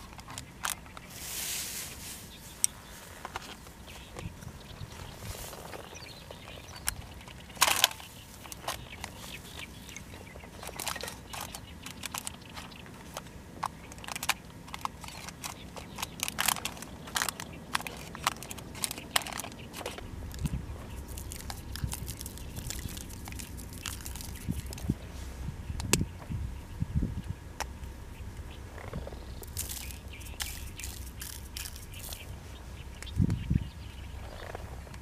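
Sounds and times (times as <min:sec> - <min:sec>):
paper crinkling: 0:14.0 - 0:25.0, 0:29.4 - 0:32.2
low rumble: 0:17.1 - 0:35.0.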